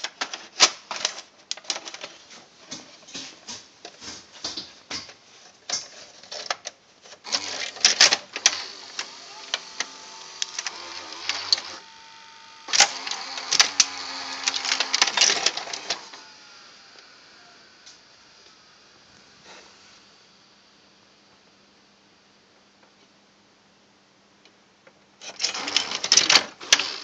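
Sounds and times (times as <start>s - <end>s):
rapid mechanical clicking and clatter: 7.2s - 11.8s, 12.7s - 16.2s, 25.2s - 27.0s
motor whine sliding in pitch: 8.8s - 14.8s.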